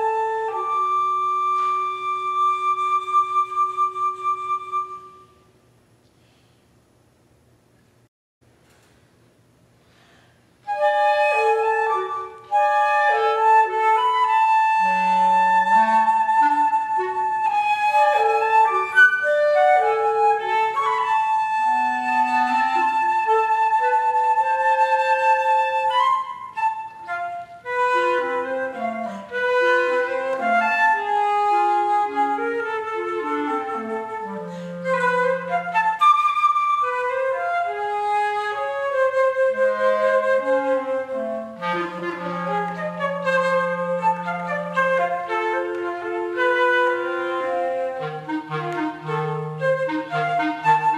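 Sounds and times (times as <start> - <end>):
flute and clarinet duet: 0.0 - 5.5, 10.6 - 50.9.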